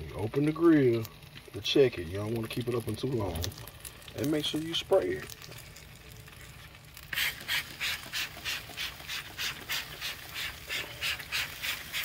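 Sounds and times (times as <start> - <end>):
spray bottle spritzing: 7.1 - 12.0.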